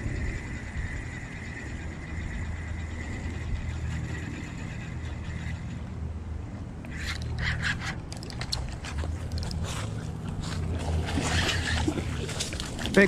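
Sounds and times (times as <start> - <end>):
steady low rumble: 0.0 - 13.0
fish thrashing and splashing: 6.9 - 13.0.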